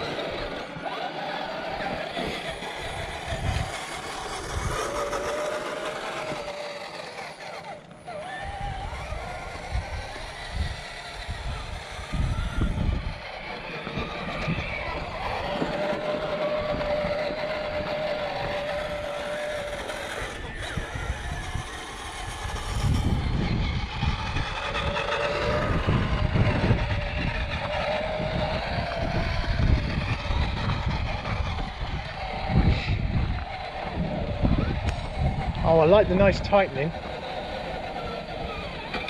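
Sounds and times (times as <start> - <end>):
electric motor and gears whining: 0.0 - 39.0.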